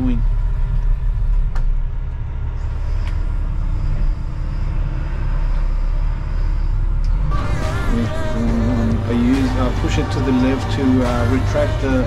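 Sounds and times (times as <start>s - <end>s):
diesel engine rumbling: 0.0s - 12.0s
background music: 7.1s - 12.0s.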